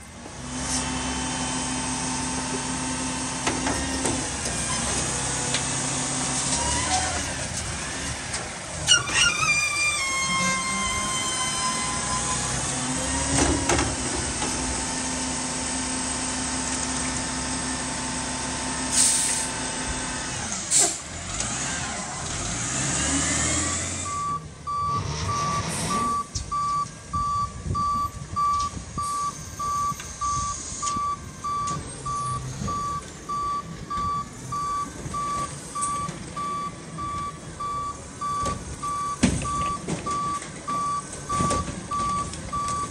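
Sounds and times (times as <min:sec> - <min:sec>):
garbage truck engine and hydraulics: 0:00.0 - 0:42.9
back-up alarm beeping: 0:24.1 - 0:42.9.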